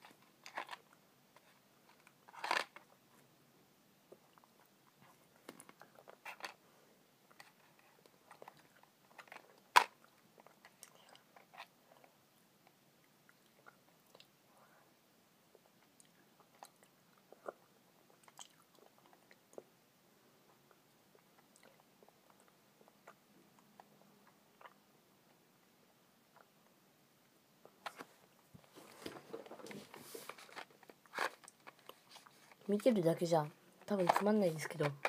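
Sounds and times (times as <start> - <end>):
chewing candy: 15.6 - 19.7.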